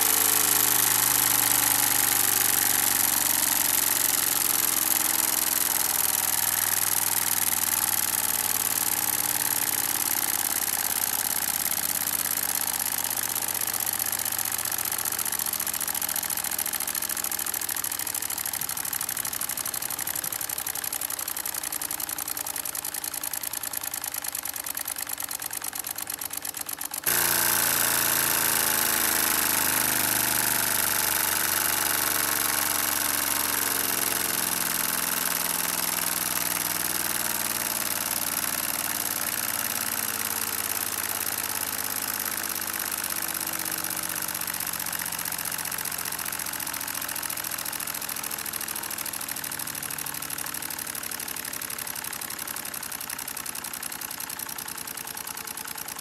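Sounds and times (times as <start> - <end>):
toy air engine chattering: 0.0 - 56.0.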